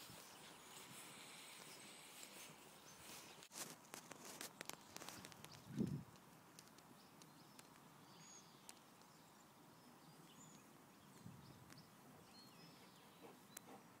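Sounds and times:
faint distant bird chirps: 0:00.0 - 0:03.5, 0:06.6 - 0:14.0.

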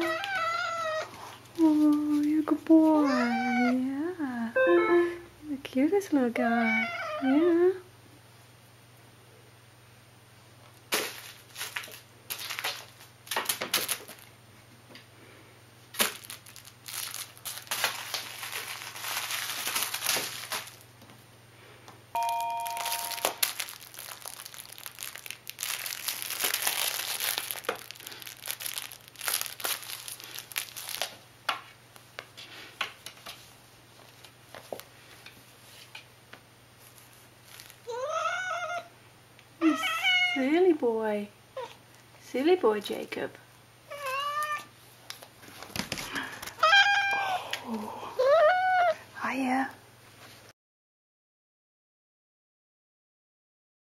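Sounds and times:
crinkle toy rustling: 0:00.0 - 0:03.8, 0:10.9 - 0:14.4, 0:15.9 - 0:21.0, 0:22.2 - 0:35.9, 0:36.7 - 0:38.2
two-tone ding: 0:04.6 - 0:05.2, 0:22.2 - 0:23.4.

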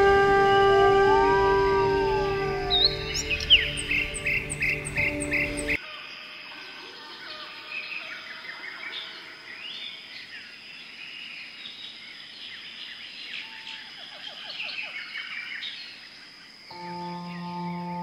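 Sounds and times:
small birds chirping: 0:02.1 - 0:05.8
steady high-pitched tone: 0:16.7 - 0:18.0.

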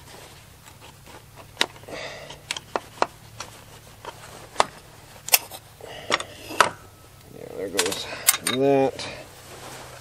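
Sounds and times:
low steady hum: 0:00.0 - 0:10.0
chainsaw parts clicking and knocking: 0:07.7 - 0:08.7.

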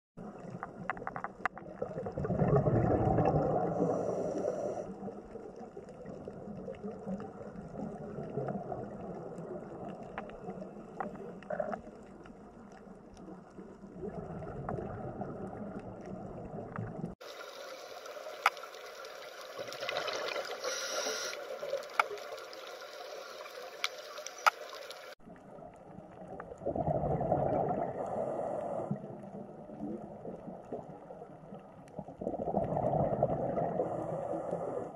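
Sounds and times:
underwater rushing and bubbling: 0:00.2 - 0:34.9
hissy wash with sharp clicks: 0:17.9 - 0:19.9, 0:20.7 - 0:25.2.

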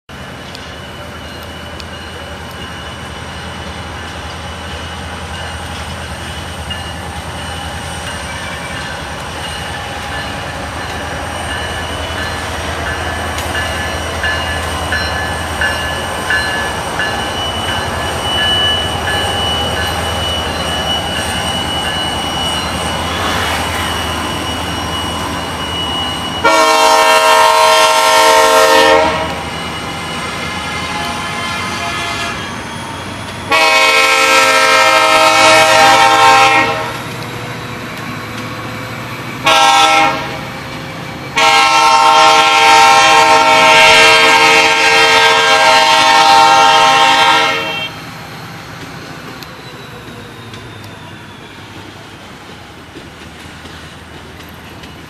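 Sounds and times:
diesel locomotive engines rumbling: 0:00.1 - 0:55.0
locomotive horn blast: 0:26.4 - 0:29.5, 0:30.2 - 0:32.5, 0:33.5 - 0:37.0, 0:39.4 - 0:40.5, 0:41.4 - 0:48.0.

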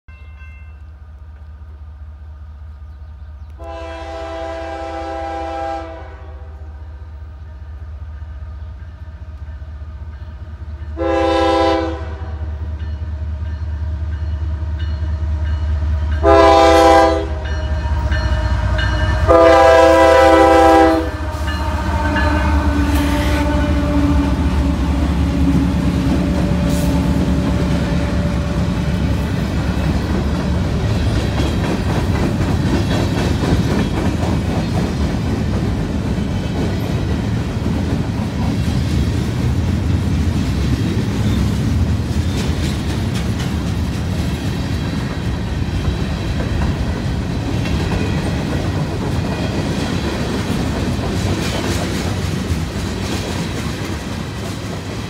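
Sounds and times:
diesel locomotives rumbling: 0:00.1 - 0:55.0
locomotive air horn blasts: 0:03.6 - 0:06.7, 0:11.0 - 0:12.5, 0:16.2 - 0:29.1
steel wheels clattering over rails: 0:28.9 - 0:55.0.

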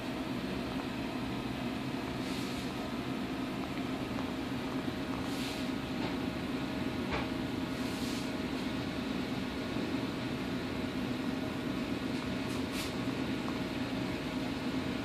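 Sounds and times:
machinery humming and hissing: 0:00.0 - 0:15.0.

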